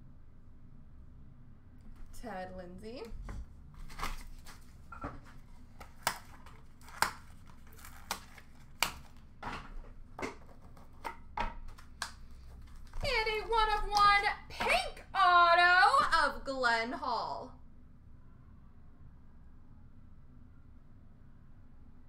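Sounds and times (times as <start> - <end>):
cardboard rustling: 3.2 - 11.0.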